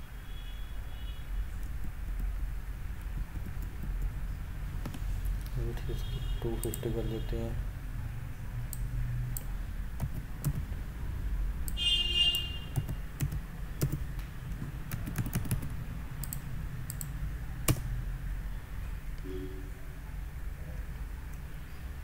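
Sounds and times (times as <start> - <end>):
low steady hum: 0.0 - 22.0
keyboard keystrokes: 9.3 - 10.7, 12.8 - 17.9
brief high-pitched tone: 19.2 - 19.8.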